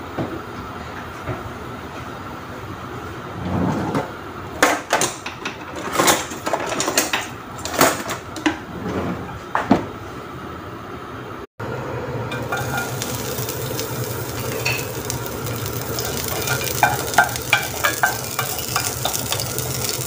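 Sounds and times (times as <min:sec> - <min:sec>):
kitchen clicks and knocks: 0:04.6 - 0:08.6, 0:16.0 - 0:20.0.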